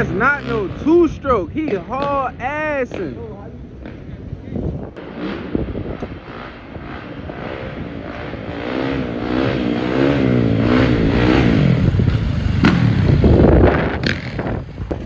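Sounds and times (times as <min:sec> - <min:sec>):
dirt bike engine revving: 0:00.0 - 0:02.2, 0:05.0 - 0:15.0.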